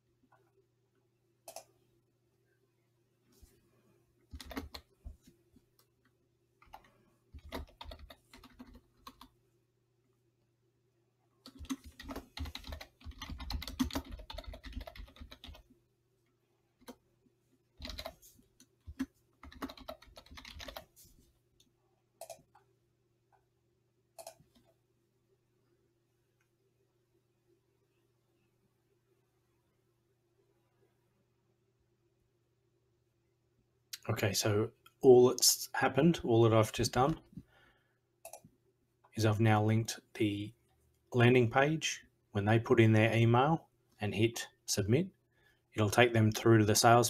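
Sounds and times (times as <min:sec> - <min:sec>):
computer keyboard typing: 0:01.4 - 0:01.7, 0:04.3 - 0:04.9, 0:06.6 - 0:09.4, 0:11.4 - 0:15.7, 0:17.8 - 0:20.9, 0:22.2 - 0:22.6, 0:24.2 - 0:24.7, 0:38.2 - 0:38.4.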